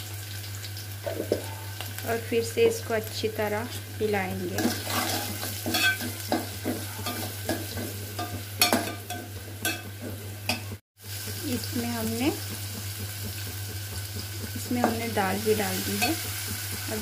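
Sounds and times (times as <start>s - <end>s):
oil sizzling: 0.0s - 17.0s
spoon stirring and scraping pot: 4.4s - 10.8s.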